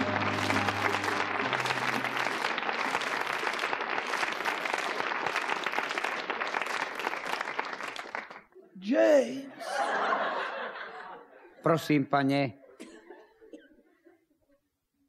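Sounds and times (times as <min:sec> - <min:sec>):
low musical notes: 0:00.0 - 0:03.3
audience applauding: 0:00.0 - 0:08.6.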